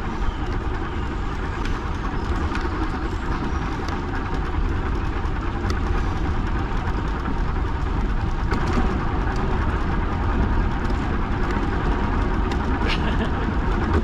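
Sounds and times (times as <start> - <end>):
bicycle tyres rolling: 0.0 - 14.0
wind buffeting microphone: 0.0 - 14.0.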